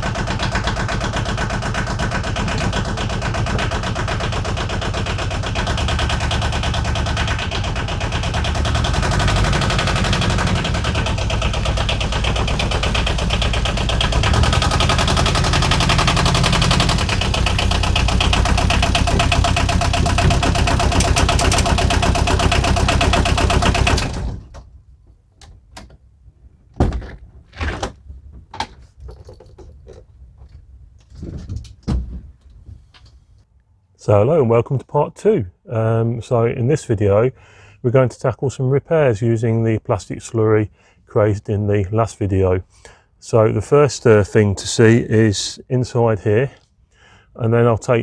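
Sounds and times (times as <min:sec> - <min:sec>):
van door thuds and clicks: 0:16.9 - 0:22.1.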